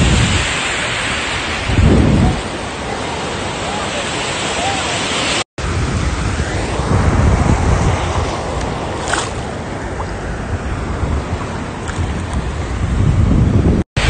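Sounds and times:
wind buffeting microphone: 0.0 - 13.8
surf sloshing around legs: 7.7 - 12.7.

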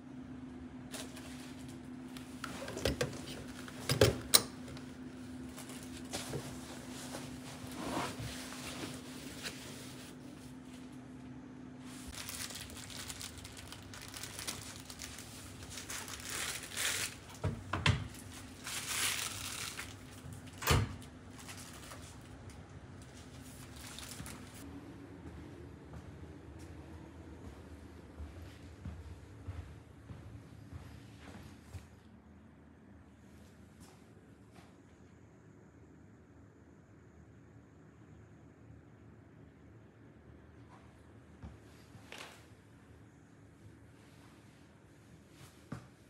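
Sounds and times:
steady low hum: 0.0 - 46.0
rustling and handling noises: 0.9 - 24.7.

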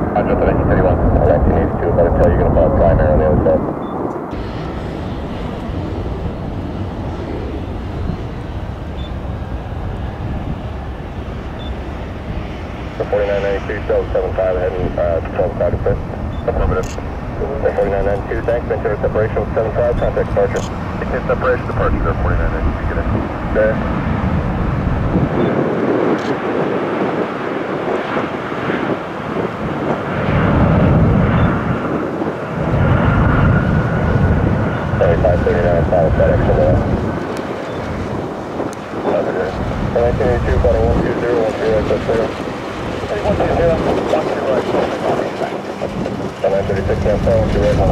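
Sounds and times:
jet engines rumbling: 0.0 - 47.9
thin steady whine: 0.2 - 23.8, 35.0 - 47.9.

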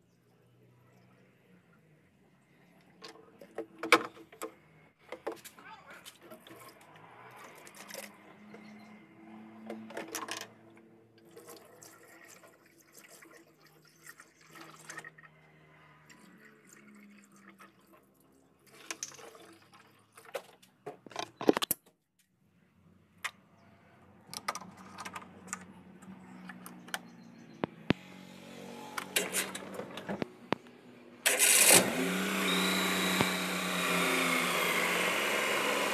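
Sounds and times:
car engine starting and running: 24.1 - 35.9.

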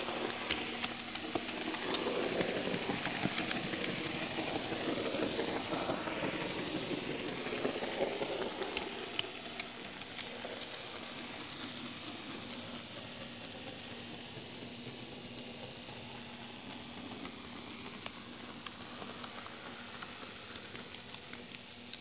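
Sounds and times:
model train rumbling on rails: 0.0 - 22.0
sharp clicks: 8.7 - 10.8.

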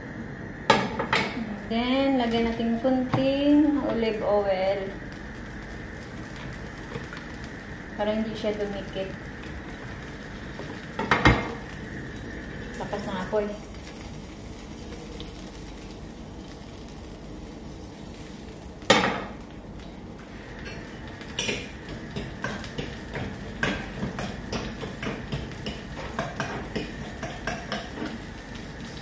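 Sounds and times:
frying pan clanking on grate: 11.0 - 11.6, 18.9 - 19.4, 20.7 - 28.2.

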